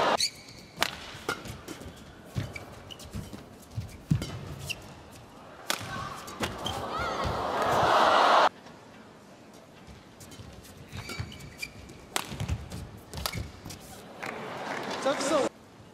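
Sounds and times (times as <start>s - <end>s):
racket hitting shuttlecock: 0.2s - 5.0s, 5.6s - 7.4s, 10.3s - 13.9s
shoes squeaking on court: 0.2s - 5.4s, 6.1s - 7.4s, 9.8s - 14.1s
crowd noise: 5.4s - 9.5s, 14.0s - 15.9s.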